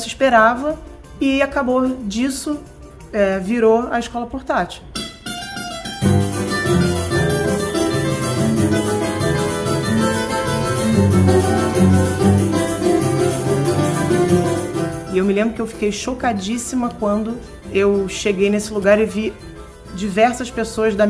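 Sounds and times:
lively string ensemble with tambourine: 6.0s - 15.1s.

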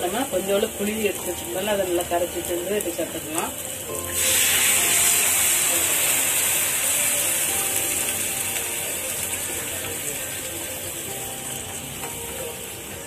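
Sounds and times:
liquid sizzling in hot oil: 0.0s - 13.0s.

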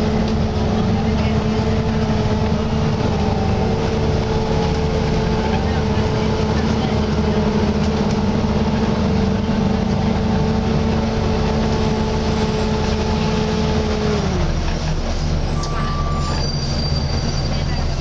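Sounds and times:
bus engine and road noise: 0.0s - 18.0s.

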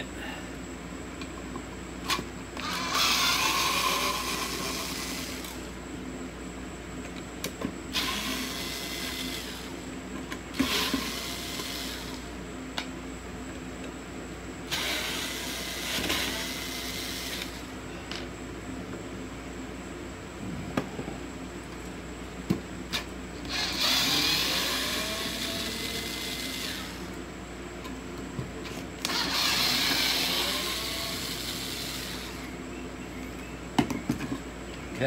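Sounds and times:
electric screwdriver running: 2.6s - 5.6s, 8.0s - 9.7s, 10.6s - 12.2s, 14.7s - 17.6s, 23.5s - 27.1s, 29.0s - 32.4s.

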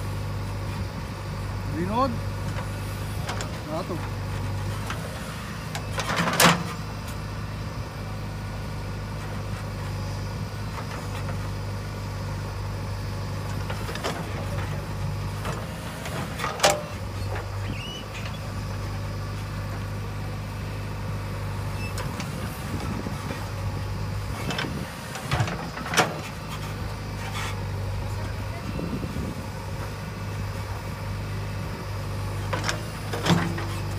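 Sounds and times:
diesel engine running: 0.0s - 33.9s.

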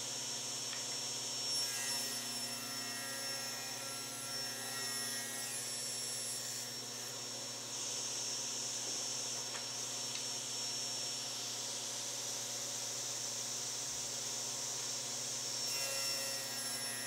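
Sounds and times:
table saw motor whine: 1.0s - 12.5s, 15.3s - 17.0s.

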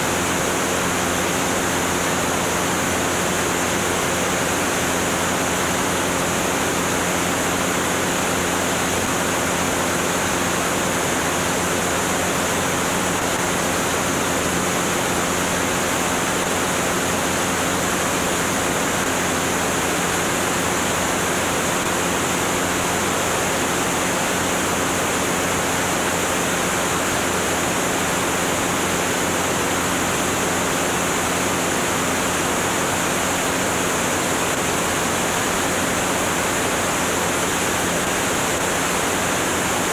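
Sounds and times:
aircraft engine and propeller drone: 0.0s - 39.9s.

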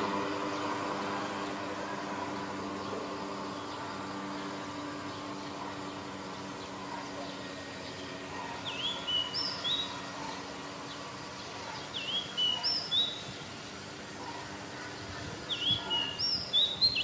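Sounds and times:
steady high hiss: 0.0s - 17.0s
songbird whistling: 8.6s - 11.0s, 11.8s - 13.3s, 15.5s - 17.0s.

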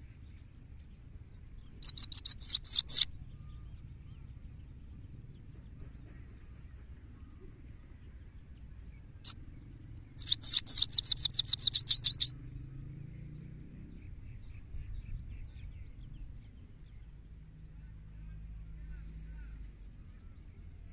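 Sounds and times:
goldfinch singing: 1.7s - 3.1s, 10.2s - 12.3s.

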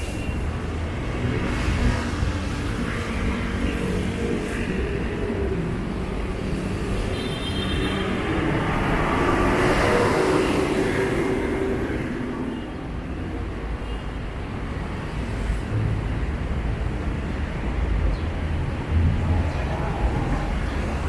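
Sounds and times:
city street traffic: 0.0s - 21.0s.

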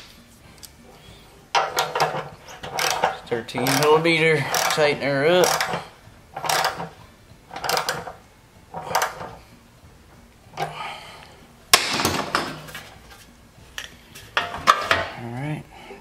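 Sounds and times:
wrench clicking on metal: 1.6s - 8.2s, 8.8s - 9.4s.

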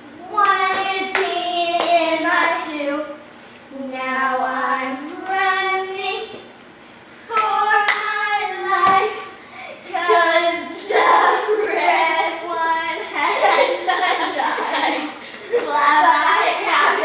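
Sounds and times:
children singing a chant: 9.9s - 13.2s.

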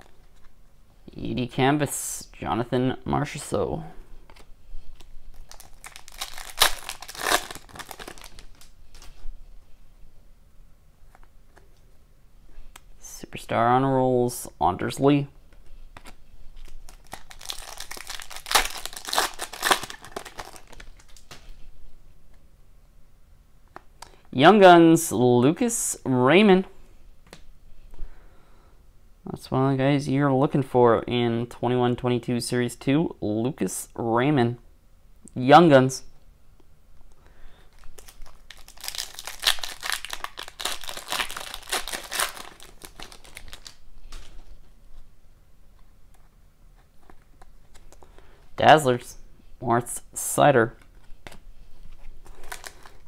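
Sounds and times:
foil wrappers crinkling: 5.0s - 9.2s, 16.0s - 21.4s, 37.7s - 44.6s, 51.8s - 53.0s.

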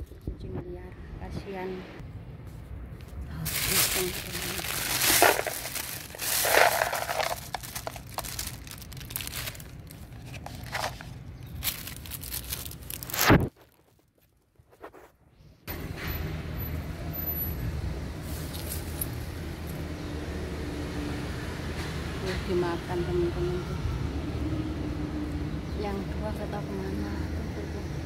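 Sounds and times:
low outdoor rumble: 0.0s - 13.2s
plastic bag rustling: 3.3s - 15.1s.

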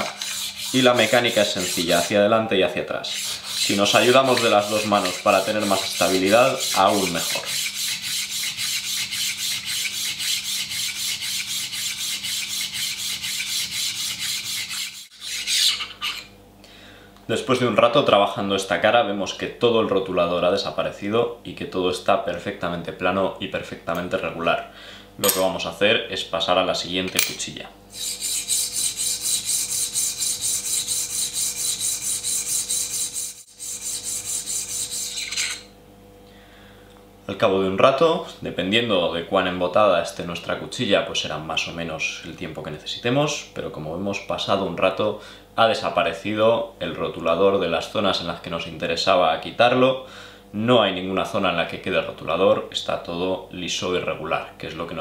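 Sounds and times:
blade rasping on sharpening plate: 0.0s - 2.2s, 3.1s - 16.3s, 27.9s - 35.7s.

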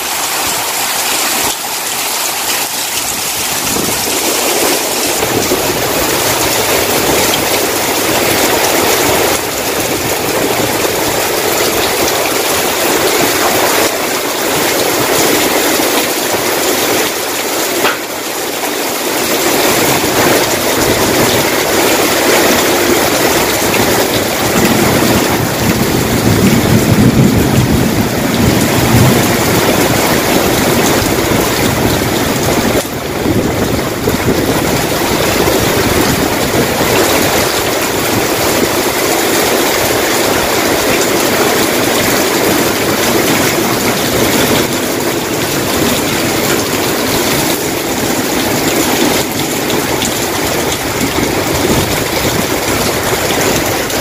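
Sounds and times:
heavy rain: 0.0s - 54.0s
strong wind: 0.0s - 54.0s.

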